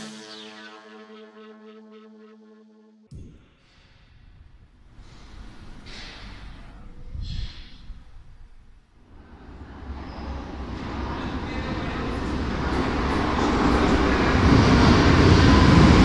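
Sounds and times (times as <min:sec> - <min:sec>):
metro train rumble in tunnel: 0:04.4 - 0:16.0
brief hissing: 0:05.0 - 0:08.1.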